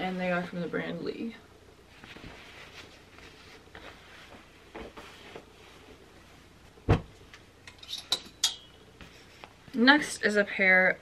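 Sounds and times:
low room hum: 0.0 - 11.0
denim jeans rustling: 1.9 - 7.1.

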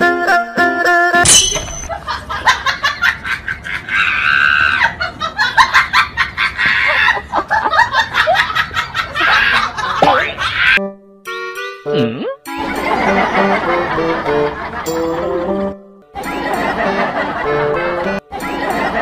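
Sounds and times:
people laughing: 1.9 - 10.8, 12.6 - 15.0, 16.2 - 19.0
giggling and shrieks: 3.8 - 5.0, 9.1 - 10.8.

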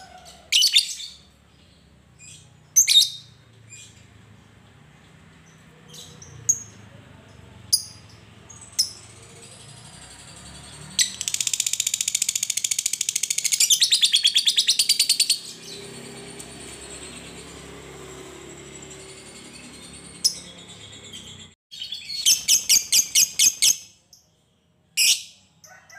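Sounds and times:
lovebird rattling chatter: 11.0 - 13.9.

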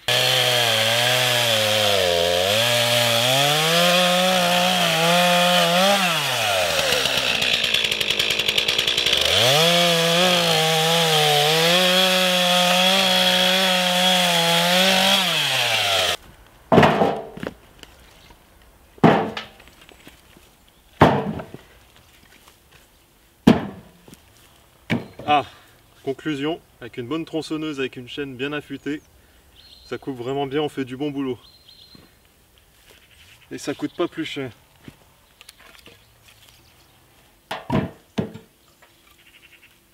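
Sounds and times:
chainsaw cutting logs: 0.0 - 17.6
loud thuds: 16.7 - 17.5, 19.0 - 19.6, 21.0 - 21.6.

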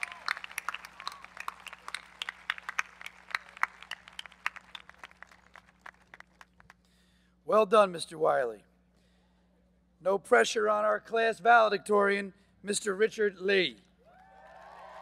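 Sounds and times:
crowd applauding: 0.0 - 6.7, 14.2 - 15.0.

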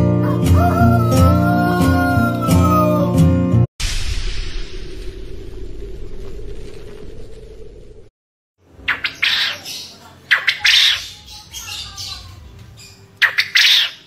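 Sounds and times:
music: 0.0 - 3.7
quail calling: 8.8 - 12.3, 13.2 - 14.0.

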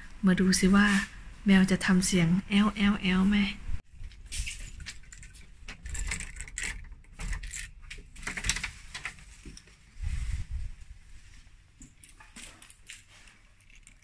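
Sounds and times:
key turning in lock: 4.6 - 9.1.

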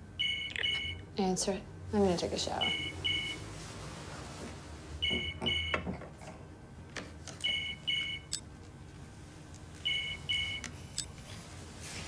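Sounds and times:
phone ringtone beeps: 0.2 - 1.0, 2.6 - 3.4, 7.4 - 8.4, 9.9 - 10.6.

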